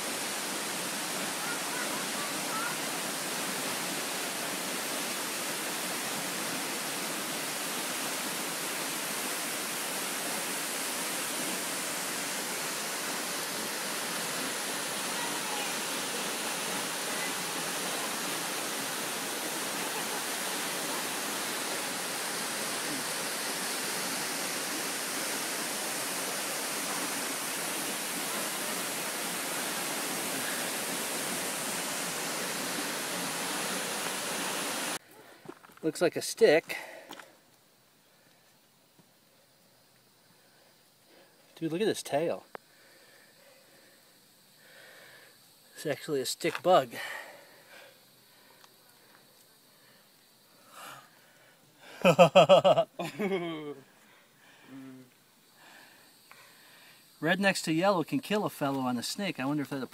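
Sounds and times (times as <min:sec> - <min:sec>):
waterfall rushing: 0:00.0 - 0:35.0.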